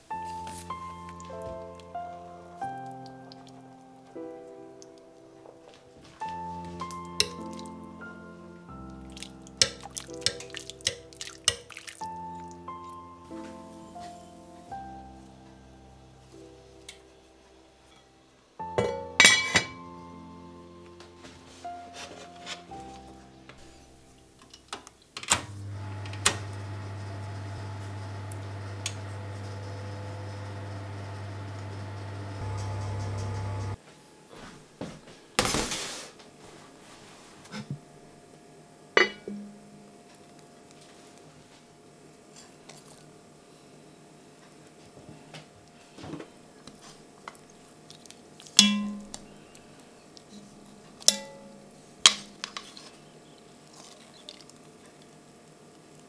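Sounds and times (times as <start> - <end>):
metal tongs clinking on a pot: 7.2 - 7.7, 9.6 - 11.9, 18.8 - 19.8, 48.6 - 49.2
oven knobs clicking: 25.3 - 33.8
oven fan humming: 25.4 - 33.8.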